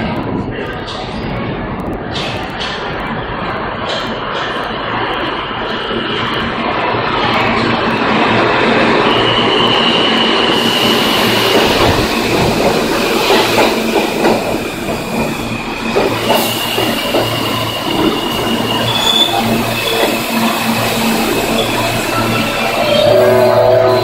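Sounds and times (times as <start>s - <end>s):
subway train wheels clattering: 0.0s - 24.0s
high wheel squeal: 9.0s - 24.0s.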